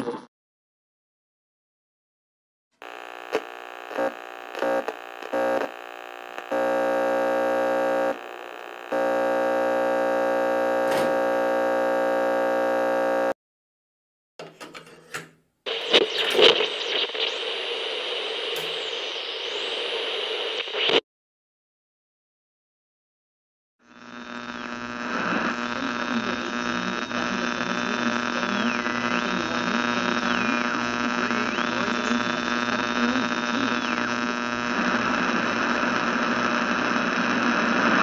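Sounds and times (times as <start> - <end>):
crackles: 2.8 - 13.4, 15.7 - 21.0, 23.9 - 38.0
radio static hissing: 2.8 - 13.4, 15.7 - 21.0, 23.9 - 38.0
steady buzzing tone: 2.8 - 13.4, 15.7 - 20.9, 23.9 - 37.9
clicks: 10.8 - 11.4, 14.4 - 17.3, 18.4 - 19.0.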